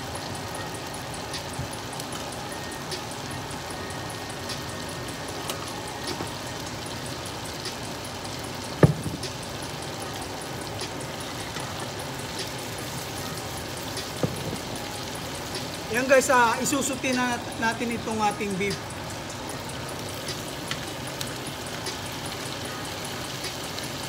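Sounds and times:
liquid bubbling in frying pans: 0:00.0 - 0:24.0
sharp knock: 0:08.8 - 0:09.3.

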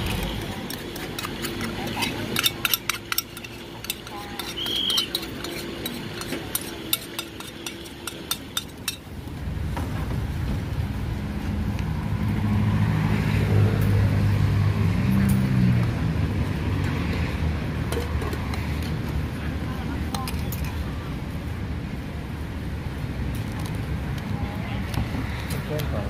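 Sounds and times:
passing vehicle engine rumbling: 0:00.0 - 0:06.2, 0:09.2 - 0:20.0
metal spoon clinking on pot: 0:00.1 - 0:09.0.

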